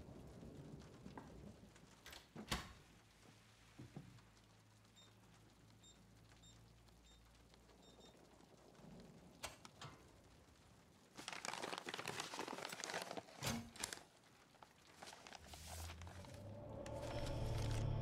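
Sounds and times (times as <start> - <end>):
paper crinkling and rustling: 11.0 - 18.0
low music: 16.0 - 18.0.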